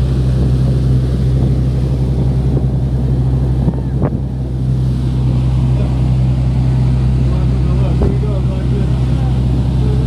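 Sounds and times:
motorboat engine drone: 0.0 - 10.0
rushing wake water: 0.0 - 10.0
wind on microphone: 0.0 - 10.0.

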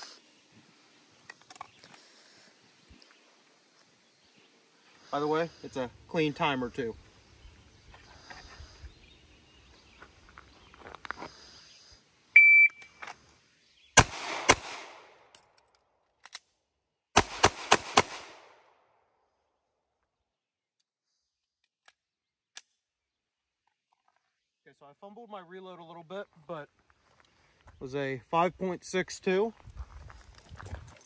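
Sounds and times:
shot timer beep: 12.4 - 12.9
pistol shots: 14.0 - 15.2, 17.2 - 18.6.

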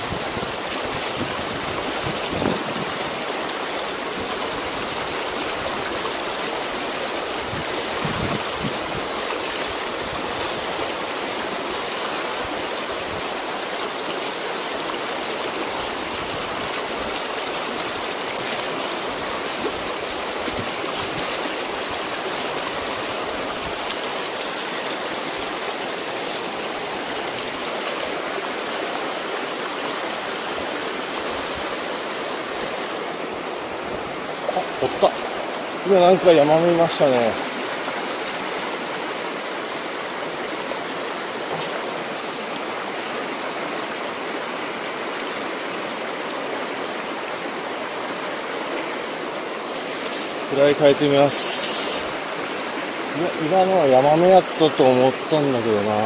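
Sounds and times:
river water rushing over boulders: 0.0 - 56.0.

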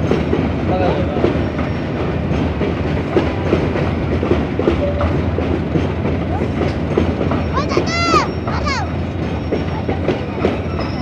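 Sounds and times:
train coaches rumbling on rails: 0.0 - 11.0
wheels clacking over rail joints: 0.0 - 11.0
wheel squeaks: 7.3 - 11.0.

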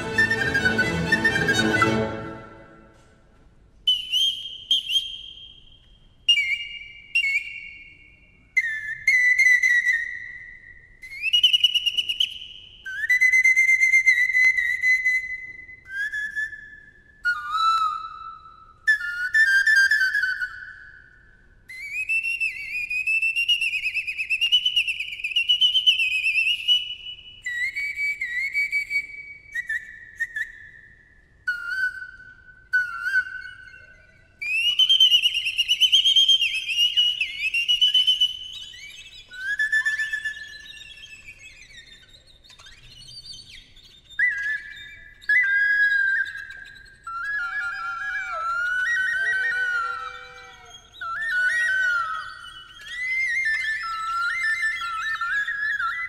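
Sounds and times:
pan flute solo: 0.0 - 3.1, 47.1 - 55.8.

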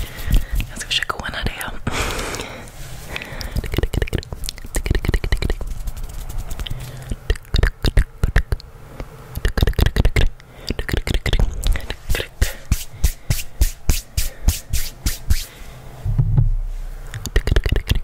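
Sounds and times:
hand and mouth clicks: 3.1 - 15.5, 17.1 - 18.0.

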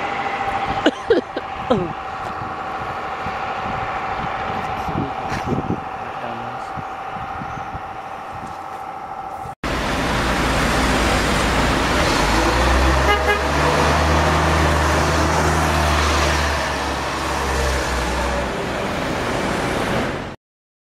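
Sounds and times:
bus engine rumbling: 0.0 - 20.4
street traffic noise: 0.0 - 20.4
bus horn toot: 12.4 - 13.9.

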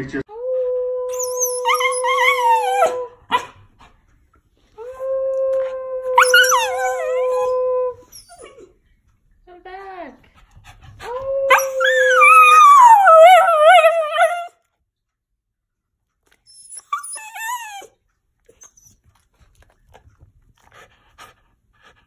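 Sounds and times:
dog howling: 0.5 - 3.4, 4.8 - 8.6, 11.0 - 14.5.

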